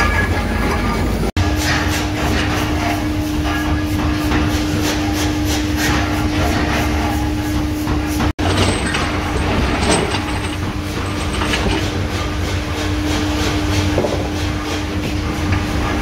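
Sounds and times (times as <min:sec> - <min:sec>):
constant machine hum: 0:00.0 - 0:16.0
irregular rattling: 0:08.4 - 0:12.2.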